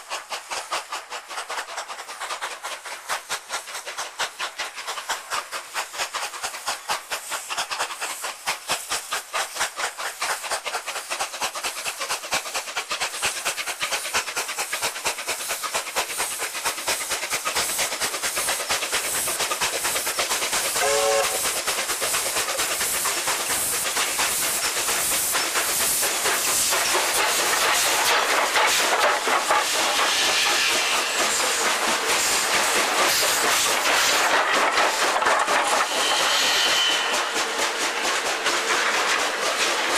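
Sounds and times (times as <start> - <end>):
hissing steam: 0.0 - 39.9
steam locomotive chuffing: 0.0 - 39.9
train whistle: 20.8 - 21.4, 35.8 - 37.3.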